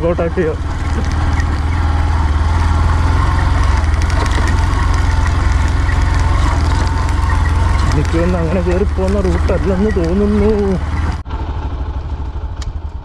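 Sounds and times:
motorcycle engine rumbling: 0:00.0 - 0:13.0
knocks and rattles: 0:00.6 - 0:02.1, 0:03.0 - 0:11.2.

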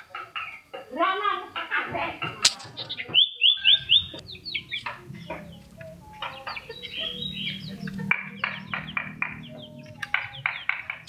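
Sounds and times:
bird chattering: 0:00.0 - 0:11.0.

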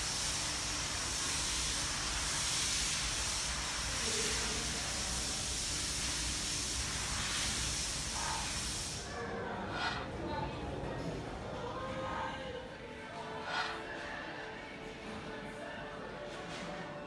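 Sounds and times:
ventilation air rushing: 0:00.0 - 0:10.3.

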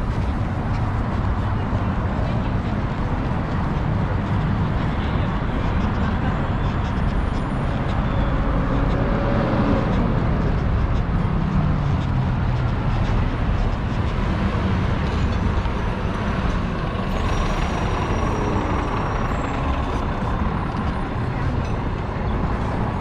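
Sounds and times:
road traffic: 0:00.0 - 0:23.0
bus driving past: 0:07.0 - 0:23.0.

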